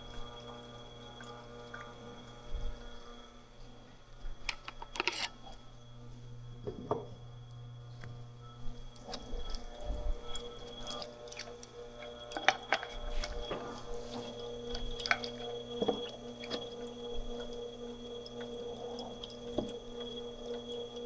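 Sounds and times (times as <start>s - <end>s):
grinder motor humming: 0.0s - 21.0s.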